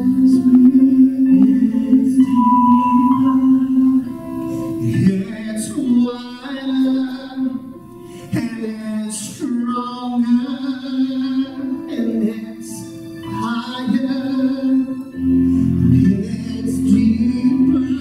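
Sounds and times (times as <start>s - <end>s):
man singing into a microphone: 0.0s - 18.0s
sustained instrumental accompaniment: 0.5s - 5.5s.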